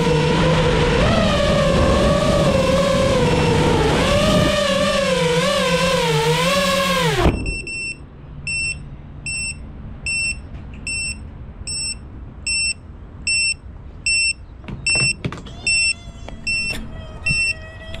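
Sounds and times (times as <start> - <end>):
drone motors whining: 0.0 - 9.6, 15.6 - 18.0
drone landing thump: 7.0 - 8.1
short high beeps: 7.3 - 17.6.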